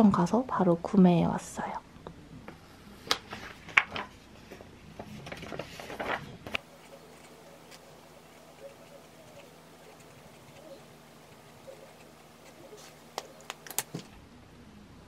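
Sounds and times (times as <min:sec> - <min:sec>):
paper rustling: 0:03.1 - 0:14.1
felt-tip pen scratching on paper: 0:06.6 - 0:13.4.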